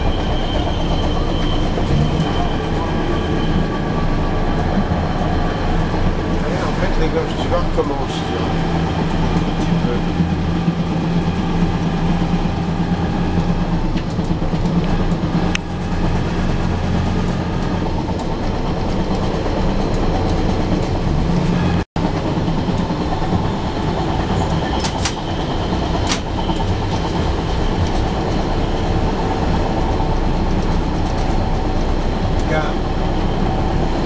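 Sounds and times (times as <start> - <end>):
wheels clicking over rail joints: 0.0 - 27.2
railcar engine drone: 0.0 - 34.0.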